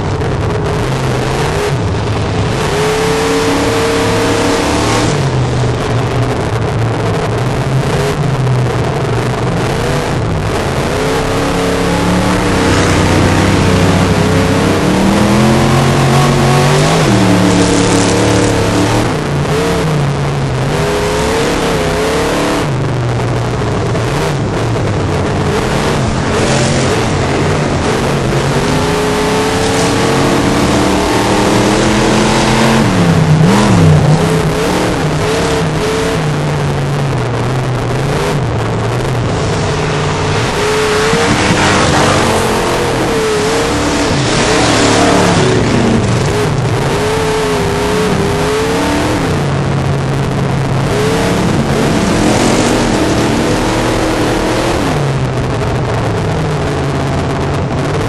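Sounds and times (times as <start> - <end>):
race car engine revving: 0.0 - 58.0
tyres on dirt: 39.3 - 47.0.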